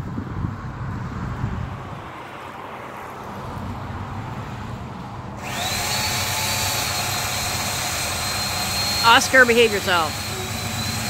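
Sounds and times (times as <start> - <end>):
chainsaw revving: 5.4 - 11.0.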